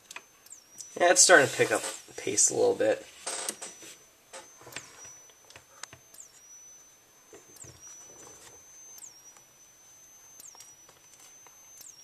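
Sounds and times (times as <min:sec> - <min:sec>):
high-pitched strobe whine: 0:00.0 - 0:12.0
faint clicks: 0:07.3 - 0:12.0.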